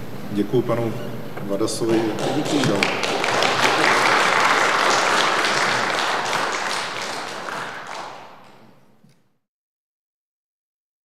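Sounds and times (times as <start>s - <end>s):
audience applauding: 1.8s - 8.8s.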